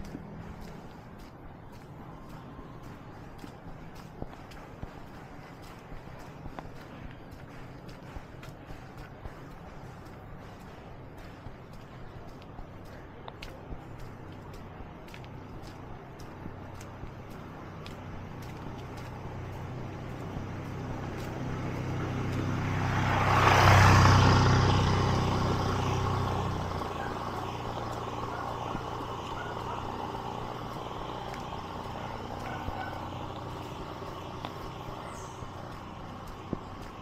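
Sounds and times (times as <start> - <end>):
vehicle driving past: 16.5 - 37.0.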